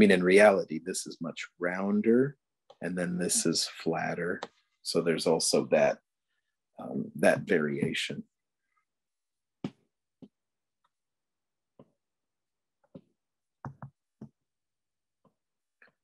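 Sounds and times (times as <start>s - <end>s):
stylus tapping on glass screen: 12.9s - 14.4s.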